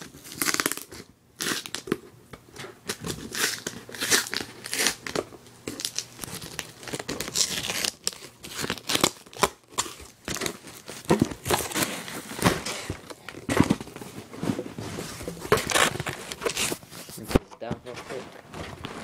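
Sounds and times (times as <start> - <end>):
cardboard box being ripped open: 5.8 - 13.9, 15.5 - 16.9.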